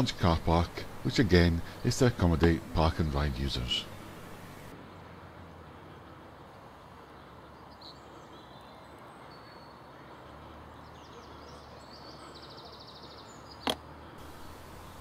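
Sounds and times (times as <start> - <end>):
steady low hiss: 0.0 - 7.3, 14.1 - 15.0
distant birds chirping: 0.0 - 15.0.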